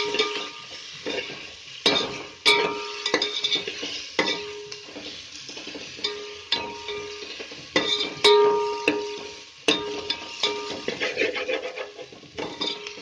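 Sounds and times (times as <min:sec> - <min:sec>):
pot ringing: 0:00.0 - 0:00.8, 0:01.9 - 0:03.5, 0:04.2 - 0:04.9, 0:06.0 - 0:11.0, 0:12.4 - 0:13.0
onions sizzling in oil: 0:00.0 - 0:13.0
metal spoon scraping pot: 0:10.5 - 0:13.0.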